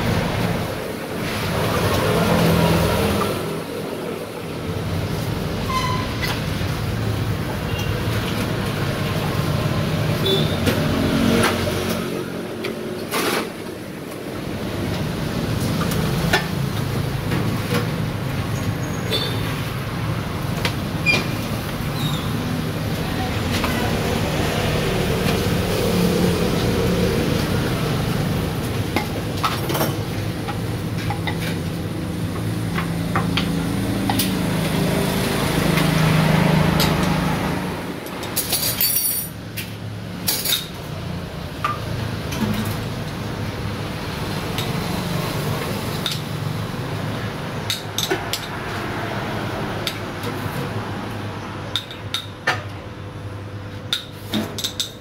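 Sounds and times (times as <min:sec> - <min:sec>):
cups and glassware clinking: 0:54.0 - 0:55.0.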